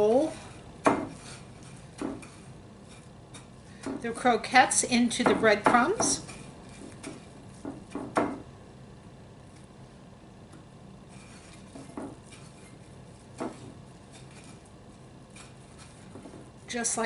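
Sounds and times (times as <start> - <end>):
croquette knocking against dish: 5.2 - 8.5, 11.8 - 12.3.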